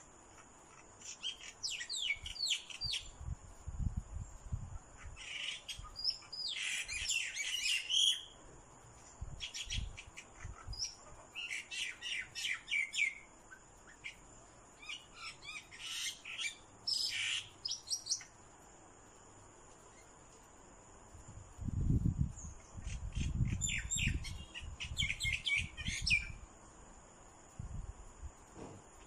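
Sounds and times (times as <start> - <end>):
birds chattering: 4.9 - 8.4, 9.5 - 18.4, 22.5 - 26.4.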